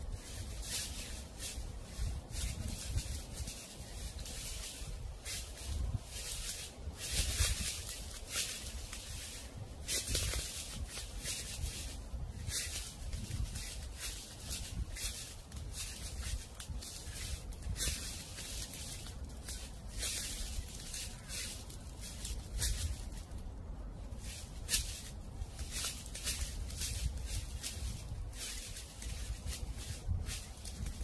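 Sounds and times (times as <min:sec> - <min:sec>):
dry leaves crunching and rustling: 0:00.0 - 0:31.0
low wind rumble: 0:00.0 - 0:31.0.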